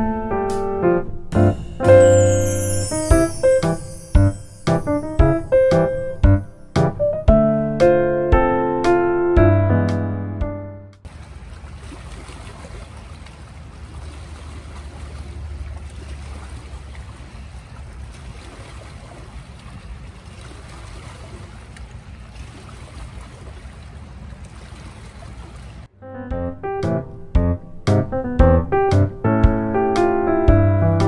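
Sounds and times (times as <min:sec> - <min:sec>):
piano tune: 0:00.0 - 0:11.0, 0:25.9 - 0:31.0.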